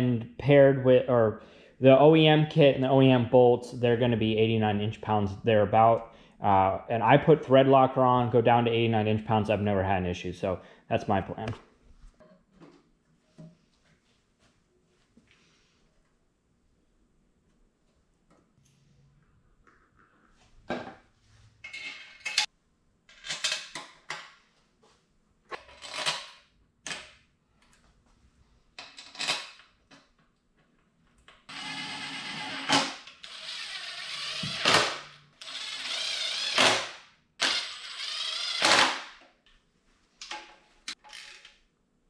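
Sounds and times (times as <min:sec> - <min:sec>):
cordless drill driving bolts: 0:31.5 - 0:39.1.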